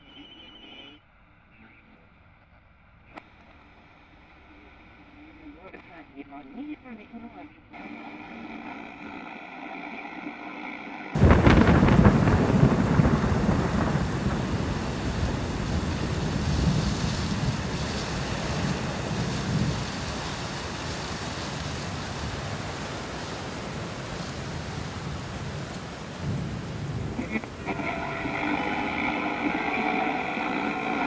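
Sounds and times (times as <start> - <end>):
rain falling: 11.2 - 31.0
thunder rumbling: 11.2 - 31.0
held chord of tones: 27.2 - 31.0.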